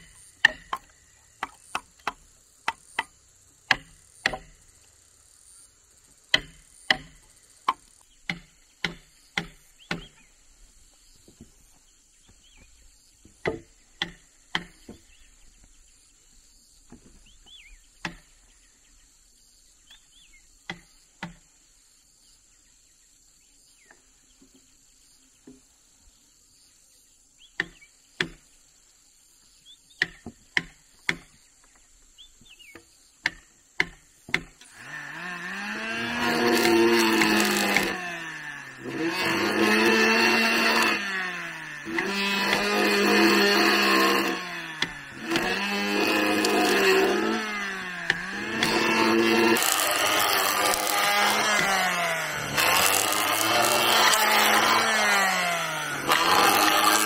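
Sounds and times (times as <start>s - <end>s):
insects: 0.0s - 35.0s
sharp knocks on wood: 3.7s - 4.5s, 6.3s - 10.1s, 13.2s - 15.0s, 30.0s - 31.4s, 32.7s - 34.6s
bird chirps: 8.0s - 13.3s, 14.9s - 20.6s
power tool motor labouring: 34.4s - 57.0s.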